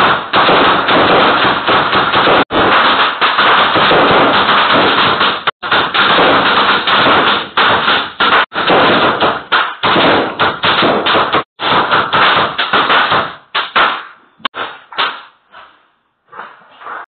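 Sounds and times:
rapid gunfire: 0.0 - 14.0.

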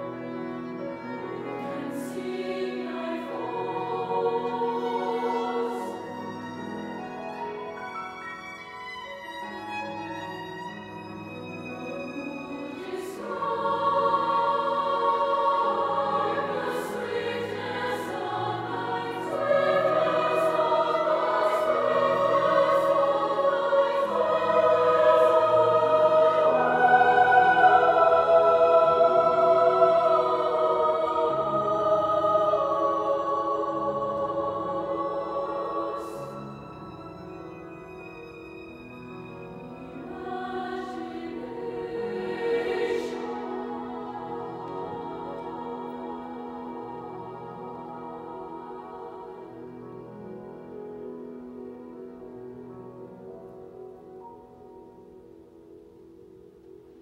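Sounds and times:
women's choir singing: 0.0 - 7.4, 11.8 - 37.6, 39.6 - 50.9
violin: 0.0 - 55.7
cello: 0.0 - 57.0
piano: 0.0 - 57.0.

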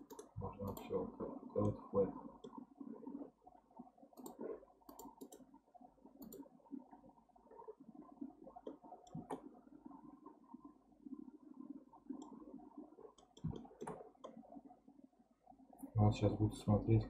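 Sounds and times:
computer mouse clicks: 0.0 - 0.9, 4.2 - 5.5, 6.2 - 6.5, 8.6 - 9.5, 12.1 - 12.5, 13.1 - 14.4.

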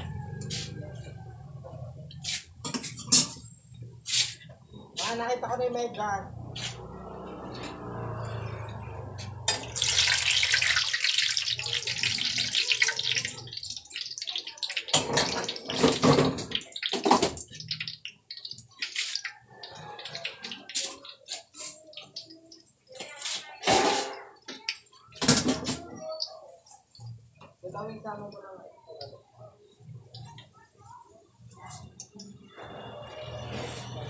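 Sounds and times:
hot oil sizzling: 9.2 - 28.4
oil popping and crackling: 9.5 - 28.0, 31.4 - 32.5.

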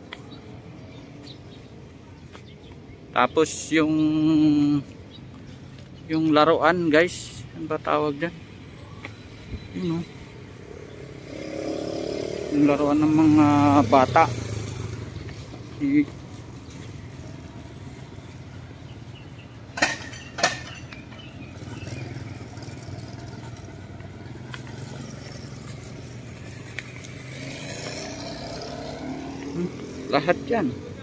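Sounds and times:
passing traffic engine hum: 6.9 - 31.0
engine rising in pitch: 24.6 - 30.7.

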